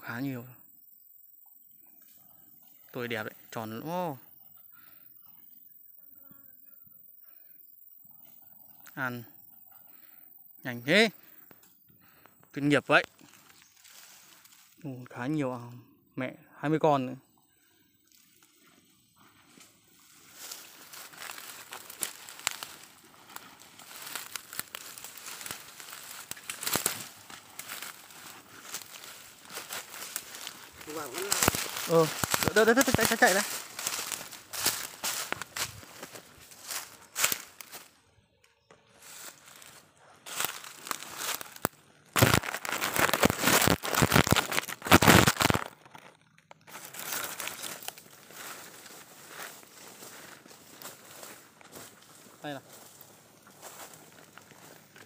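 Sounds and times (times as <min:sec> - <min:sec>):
sharp crackles: 0:10.9 - 0:14.9, 0:19.6 - 0:38.0, 0:39.0 - 0:55.0
footsteps through grass and leaves: 0:11.2 - 0:15.3, 0:18.1 - 0:38.0, 0:38.8 - 0:55.0.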